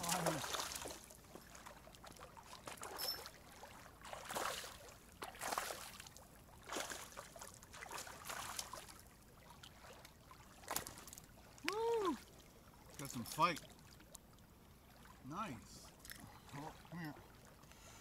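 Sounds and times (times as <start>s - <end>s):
waves lapping against rocks: 0.0s - 12.3s.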